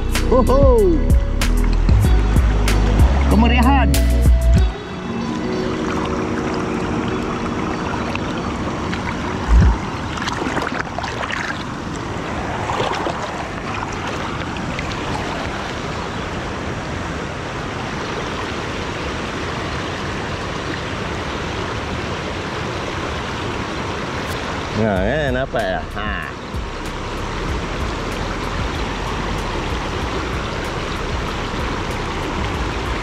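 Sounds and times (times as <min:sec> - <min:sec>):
river water rushing: 0:00.0 - 0:33.0
low thump: 0:09.5 - 0:09.8.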